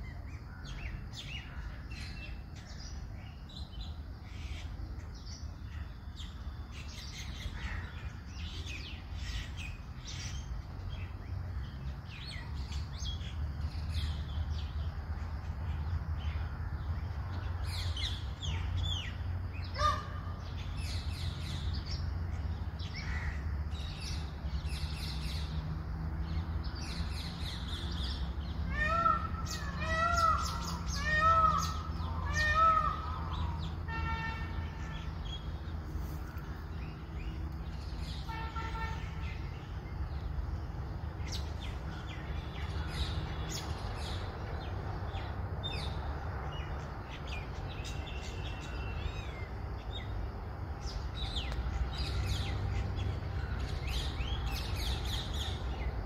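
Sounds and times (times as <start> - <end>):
loud arching bird calls: 0.0 - 25.5, 26.3 - 40.3
birds calling and chirping: 0.0 - 56.0.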